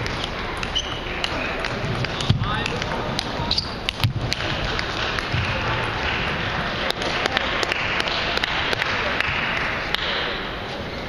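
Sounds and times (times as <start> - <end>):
large hall noise: 0.0 - 11.0.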